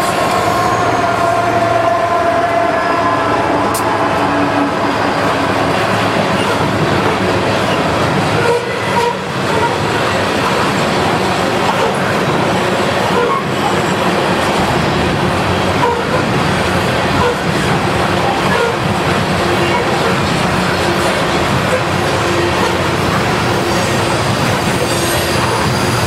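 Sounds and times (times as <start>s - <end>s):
freight train wheels rumbling and clacking: 0.0s - 26.0s.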